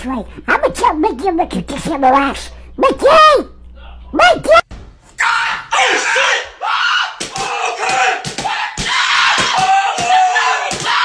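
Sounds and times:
man screaming and yelling: 5.2s - 11.0s.

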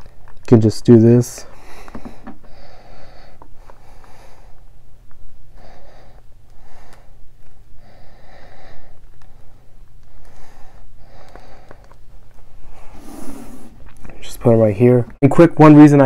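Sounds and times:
steady low hum: 0.0s - 16.0s
breathing through the nose: 1.5s - 4.7s, 5.5s - 7.2s, 7.8s - 13.8s.

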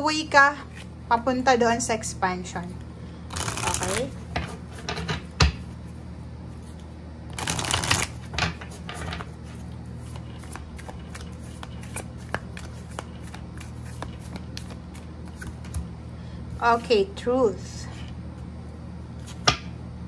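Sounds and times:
cards flicking and tapping: 3.3s - 4.0s, 7.4s - 8.1s, 10.1s - 15.9s
cards being shuffled: 3.3s - 4.2s, 6.6s - 8.3s, 9.2s - 15.9s.

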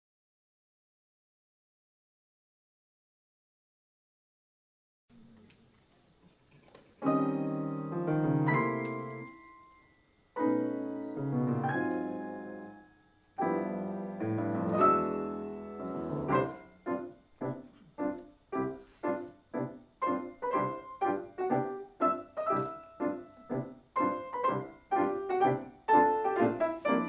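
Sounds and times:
piano duet chords: 7.0s - 27.0s.

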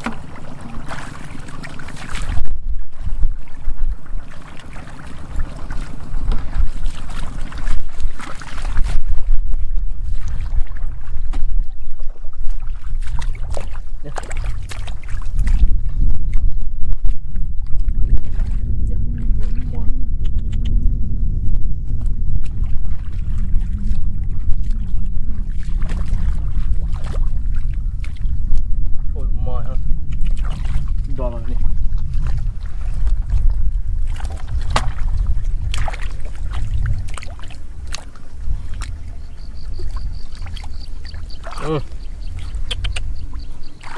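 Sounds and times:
splashing in shallow water: 0.0s - 20.9s, 21.8s - 43.9s
steady low rumble: 0.0s - 43.9s
wind buffeting microphone: 0.0s - 43.9s
hands splashing in muddy water: 12.4s - 15.8s, 32.0s - 43.9s.

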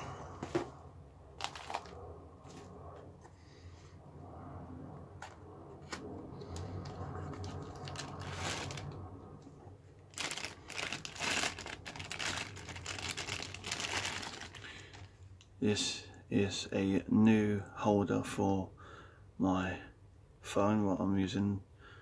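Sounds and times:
plastic bag crinkling: 1.4s - 2.0s, 6.8s - 9.0s, 10.0s - 15.1s.

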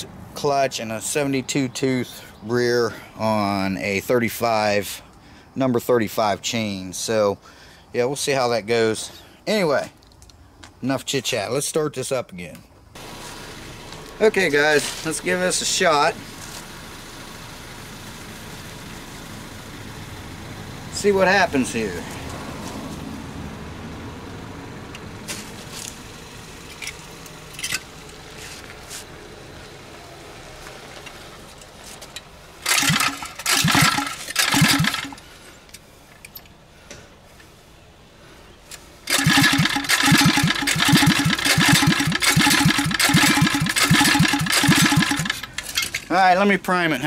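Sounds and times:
engine chugging pulses: 32.6s - 35.3s, 39.1s - 45.8s
engine cranking with recoil starter: 32.6s - 35.4s, 39.0s - 46.1s.

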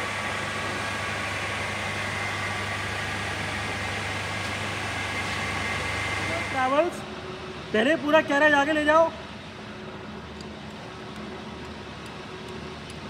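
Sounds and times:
lathe running: 0.0s - 7.8s.

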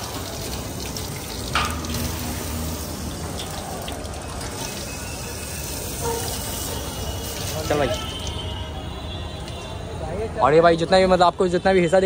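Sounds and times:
tap water running into basin: 0.0s - 8.4s.

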